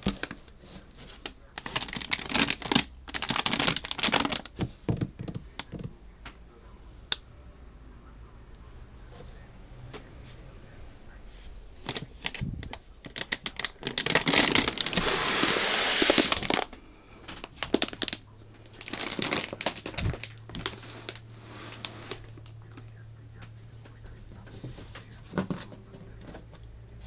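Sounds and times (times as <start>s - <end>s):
plastic wrapping crinkling: 0.0s - 5.9s, 11.8s - 22.8s.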